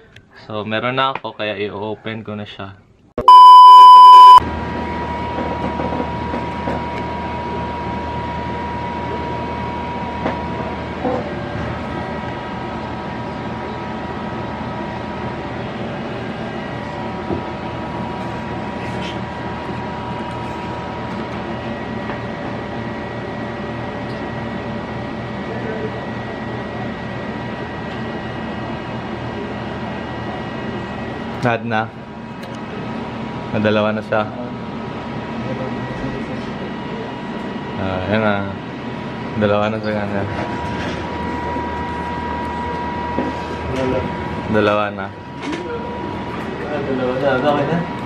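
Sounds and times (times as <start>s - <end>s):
loud electronic beep: 3.2s - 4.4s
faint high whine: 3.3s - 4.4s.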